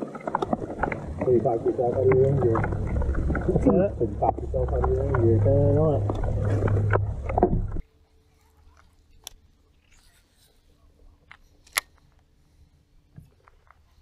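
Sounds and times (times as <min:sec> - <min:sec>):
boat engine rumble: 0:00.0 - 0:09.9
faint steady hum: 0:00.0 - 0:14.0.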